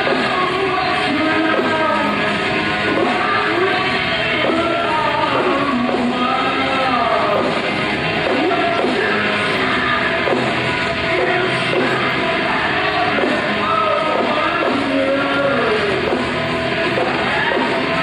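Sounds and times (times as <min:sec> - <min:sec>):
man singing: 0:00.0 - 0:02.3, 0:02.9 - 0:07.6, 0:08.2 - 0:10.4, 0:11.1 - 0:16.2
metal band playing live: 0:00.0 - 0:18.0.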